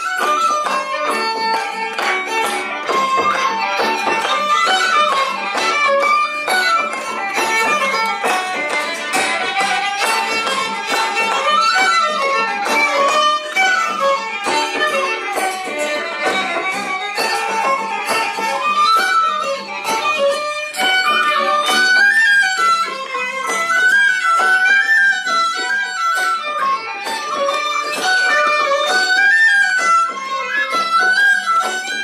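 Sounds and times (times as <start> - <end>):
whistle: 0.0 - 2.3, 21.0 - 32.0
fiddle melody: 0.0 - 32.0.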